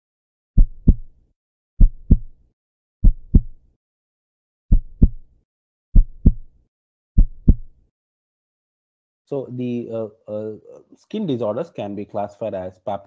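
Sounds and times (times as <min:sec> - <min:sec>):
heartbeat thumps: 0:00.6 - 0:01.1, 0:01.8 - 0:02.3, 0:03.0 - 0:03.6, 0:04.7 - 0:05.3, 0:06.0 - 0:06.5, 0:07.2 - 0:07.7.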